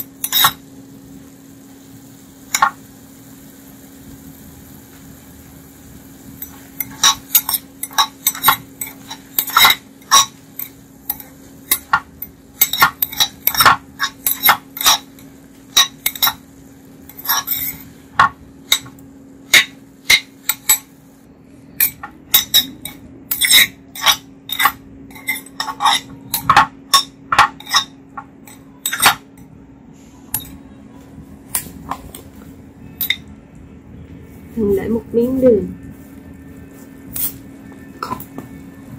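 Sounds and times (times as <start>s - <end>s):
metal spoon scraping ceramic pot: 0.0s - 0.6s, 6.4s - 16.4s, 17.1s - 17.9s, 21.8s - 29.2s
steady low hum: 0.0s - 38.9s.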